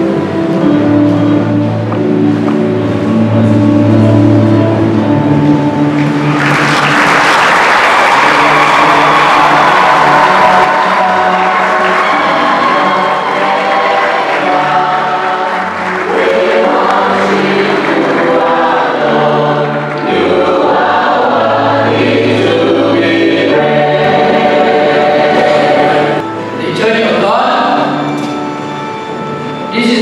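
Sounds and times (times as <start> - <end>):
choir singing in parts: 7.5 - 28.2.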